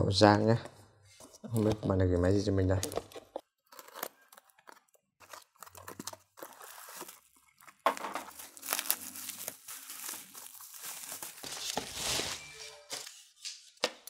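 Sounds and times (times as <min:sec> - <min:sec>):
cardboard and tape rustling: 0:02.8 - 0:13.9
bubble wrap crinkling: 0:03.6 - 0:13.4
tape ripping: 0:03.7 - 0:12.4.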